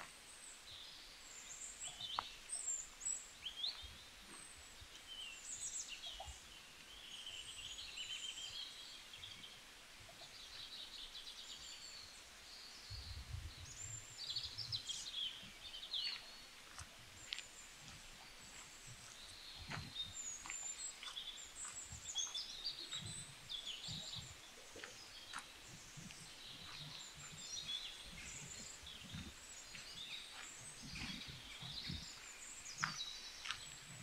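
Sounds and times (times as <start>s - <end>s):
songbirds chirping: 0.0s - 34.0s
soft low thumps and clicks: 15.4s - 34.0s.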